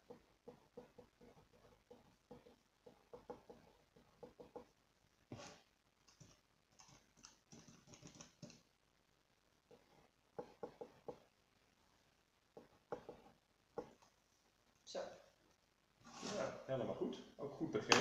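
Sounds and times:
pen scratching on paper: 0.0s - 5.6s.

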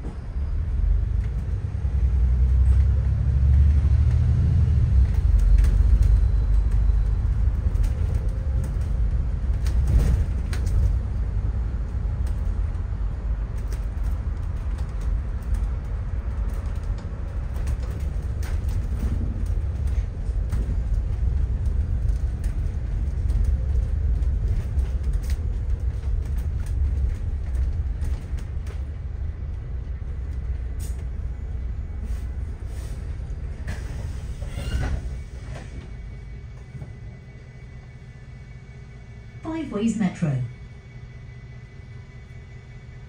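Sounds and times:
bus engine and road rumble: 0.0s - 43.0s
bus brakes squealing: 32.6s - 35.9s.

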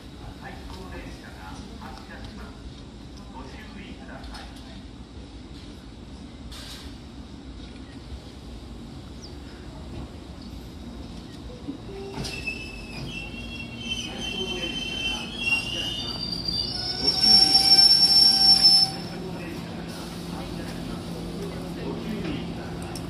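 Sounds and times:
electric train rumbling: 0.0s - 23.0s
wheels and brakes squealing: 12.2s - 19.2s.

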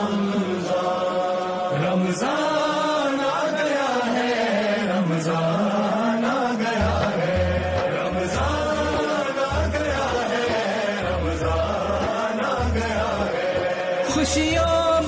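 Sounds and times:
music: 0.0s - 15.0s.

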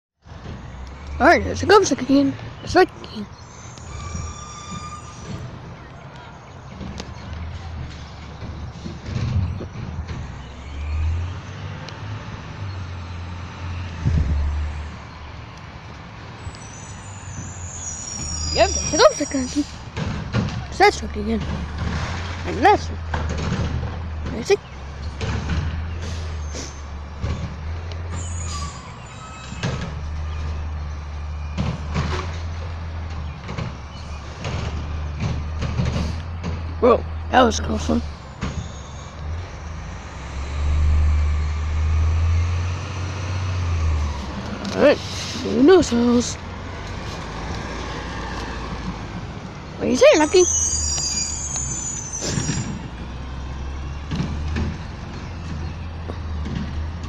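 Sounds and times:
garbage truck diesel engine: 0.2s - 57.0s
high squeal: 3.3s - 5.6s, 16.4s - 19.8s, 28.1s - 29.9s, 38.5s - 40.0s, 49.9s - 52.9s.

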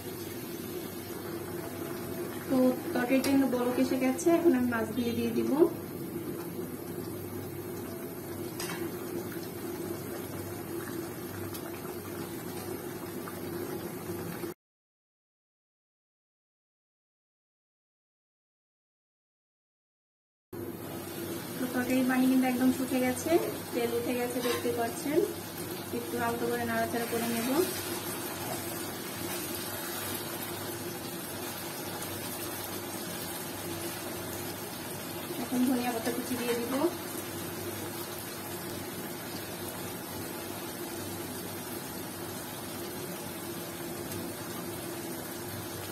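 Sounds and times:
gravy bubbling in a pan: 5.6s - 14.6s, 21.0s - 45.9s
spatula stirring in pan: 24.3s - 25.0s, 27.0s - 30.7s.

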